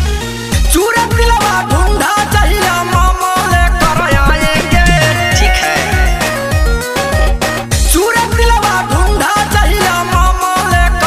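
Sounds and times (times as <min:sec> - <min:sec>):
heavy bass beat: 0:03.5 - 0:06.4
synth melody: 0:03.8 - 0:06.4.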